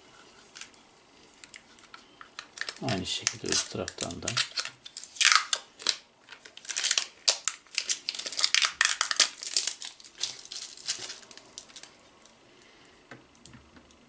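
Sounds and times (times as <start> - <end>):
plastic film crackling: 1.4 - 12.4.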